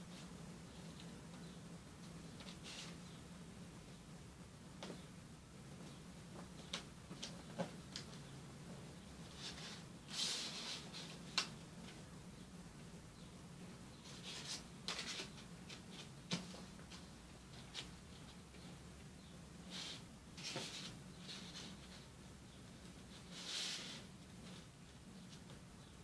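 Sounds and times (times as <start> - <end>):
paper rustling and crinkling: 14.1 - 17.9.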